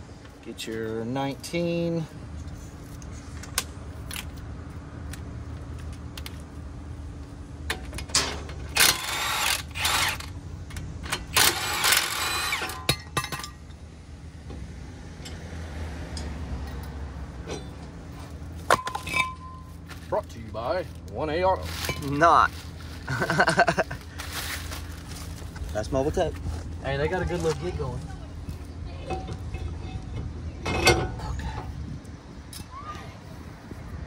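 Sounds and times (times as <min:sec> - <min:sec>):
steady low hum: 0:00.0 - 0:34.0
rattling metal: 0:28.9 - 0:31.8.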